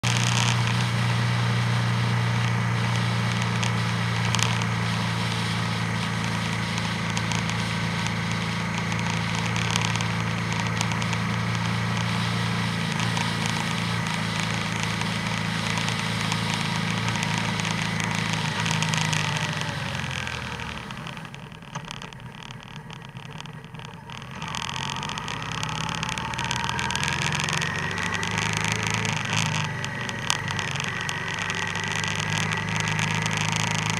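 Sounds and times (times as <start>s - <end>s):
motorcycle engine running: 0.0s - 33.9s
wind and road noise: 0.0s - 33.9s.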